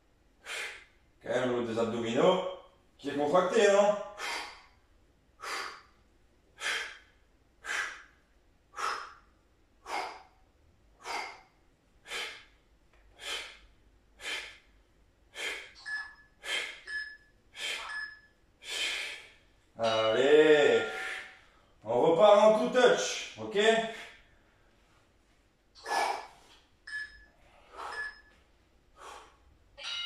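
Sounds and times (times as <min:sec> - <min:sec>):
man breathing hard: 0:00.4 - 0:01.0, 0:04.1 - 0:04.8, 0:05.4 - 0:16.9, 0:17.5 - 0:18.0, 0:18.6 - 0:19.5, 0:23.8 - 0:25.0, 0:25.8 - 0:26.6, 0:27.3 - 0:29.5.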